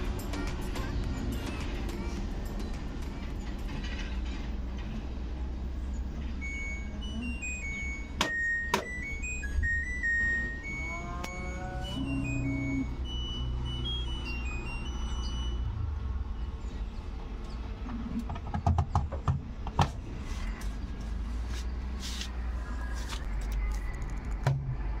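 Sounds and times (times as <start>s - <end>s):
washing machine beeps: 6.3s - 16.1s
steady low rumble: 8.9s - 18.4s.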